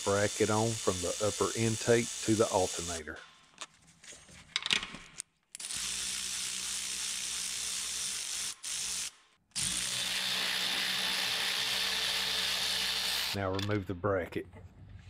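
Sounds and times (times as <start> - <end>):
power tool motor spinning: 0.3 - 3.0, 5.6 - 13.4.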